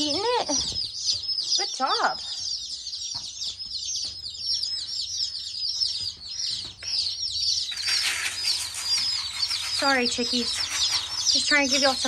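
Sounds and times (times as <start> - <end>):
baby chicks peeping: 0.0 - 12.0
pecks and scratches on newspaper: 7.6 - 12.0.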